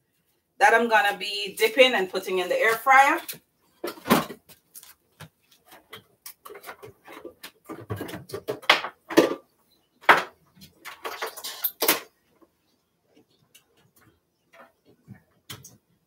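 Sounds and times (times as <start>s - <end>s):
dishes and utensils clattering: 10.1s - 12.1s.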